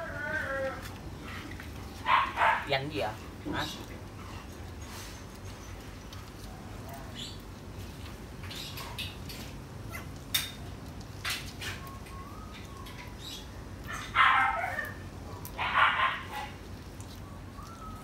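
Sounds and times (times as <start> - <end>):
dog barking: 2.1 - 2.7, 13.9 - 15.0, 15.6 - 16.6.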